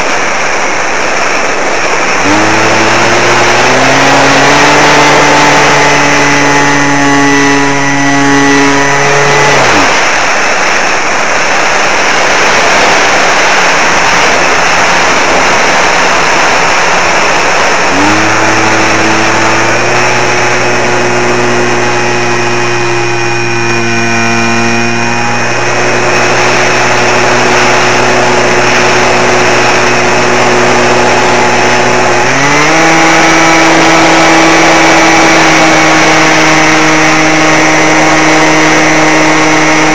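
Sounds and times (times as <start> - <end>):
model aircraft motor whining: 0.0 - 39.9
wind rush: 9.6 - 22.6.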